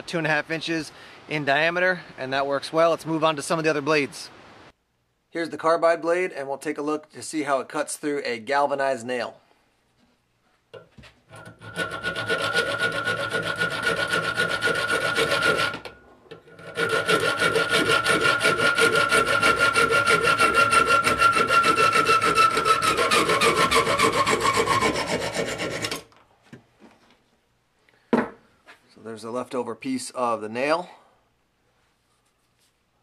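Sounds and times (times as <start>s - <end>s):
saw rasping through metal nail: 11.3s - 26.1s.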